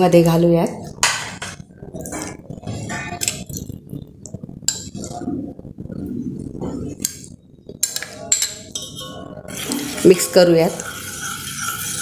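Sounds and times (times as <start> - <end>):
spoon clinking against bowl: 7.0 - 9.4.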